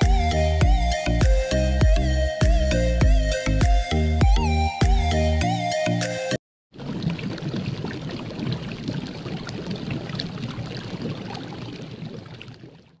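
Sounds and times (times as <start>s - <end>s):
music: 0.0s - 6.4s
crackling watery noise with pops: 6.7s - 13.0s.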